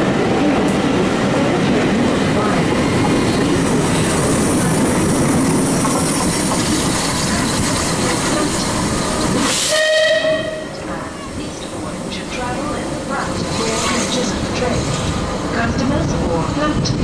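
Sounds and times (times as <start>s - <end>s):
train wheels clattering on rail: 0.0s - 17.0s
short steam whistle: 9.5s - 10.7s.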